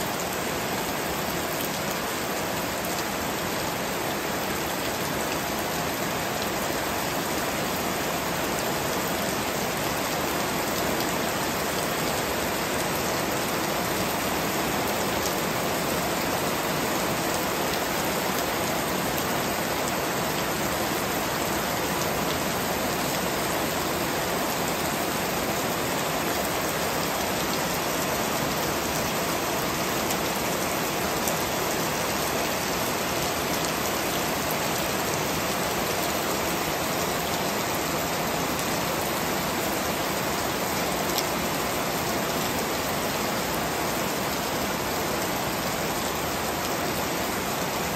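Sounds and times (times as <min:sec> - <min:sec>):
heavy rain on plants: 0:00.0 - 0:47.9.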